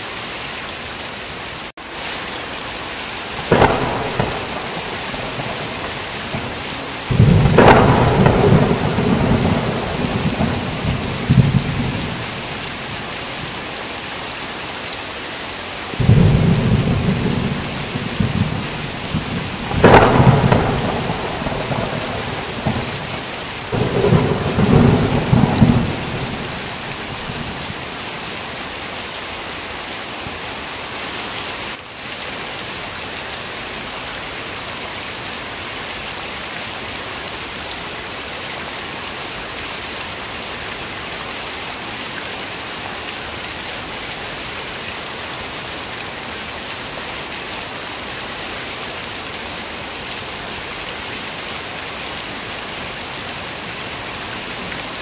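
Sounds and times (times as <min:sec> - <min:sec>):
heavy rain falling: 0:00.0 - 0:55.0
thunder rumbling: 0:03.4 - 0:13.6, 0:16.0 - 0:28.2.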